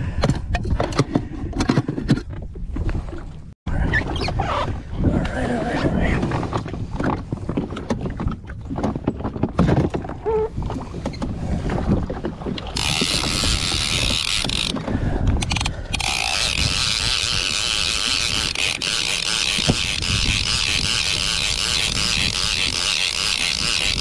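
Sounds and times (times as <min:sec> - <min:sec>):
jet ski rumbling and knocks: 0:05.9 - 0:15.5
fishing reel ratchet clicking: 0:12.8 - 0:14.8, 0:15.4 - 0:24.0.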